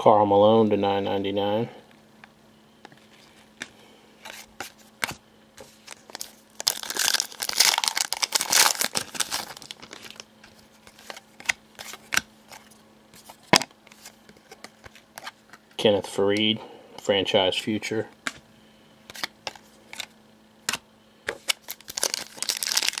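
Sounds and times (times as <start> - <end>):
plastic packaging crinkling: 5.6 - 15.4, 21.4 - 23.0.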